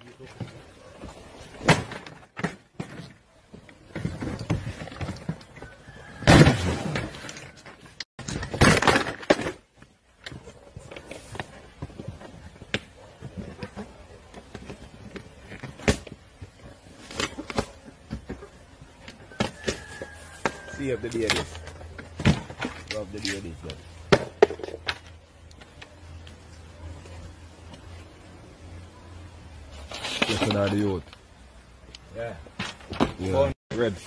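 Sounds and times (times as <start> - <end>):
frame smashing against concrete: 8.2 - 9.7.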